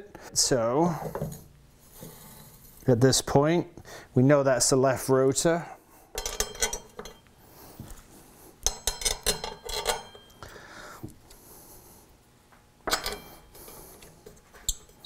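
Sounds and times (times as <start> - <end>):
metal bolts clinking: 6.2 - 7.3, 8.6 - 10.4, 12.8 - 13.4.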